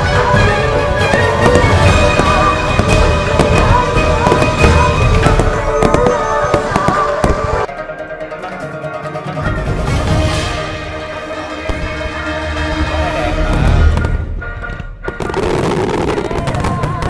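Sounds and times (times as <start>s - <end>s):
fireworks bursting and crackling: 0.0s - 7.7s, 12.7s - 17.0s
background music: 0.0s - 17.0s.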